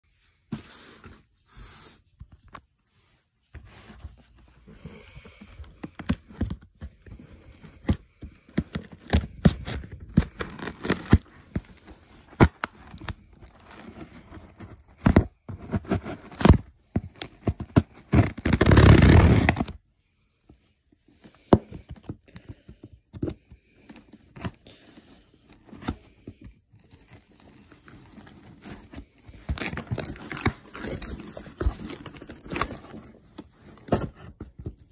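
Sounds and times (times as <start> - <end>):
cardboard box scraping and tearing: 8.7 - 11.8, 12.6 - 19.8, 26.8 - 34.8.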